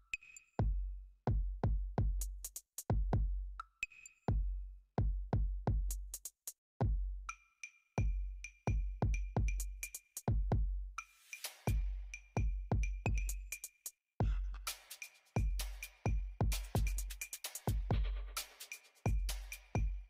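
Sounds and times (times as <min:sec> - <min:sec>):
electronic music with drum machine: 0:14.2 - 0:20.0.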